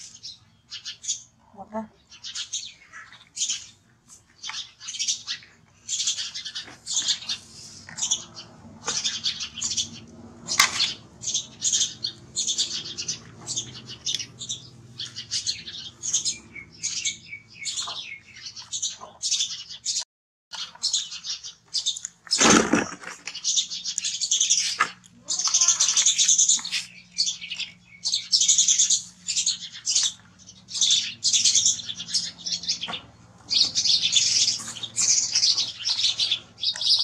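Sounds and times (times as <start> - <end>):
high-pitched animal chirps and squeaks: 24.0 - 27.6.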